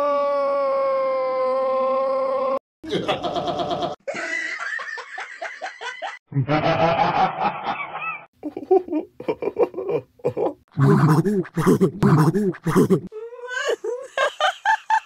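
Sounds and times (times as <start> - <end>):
cartoon characters laughing: 2.8 - 13.1.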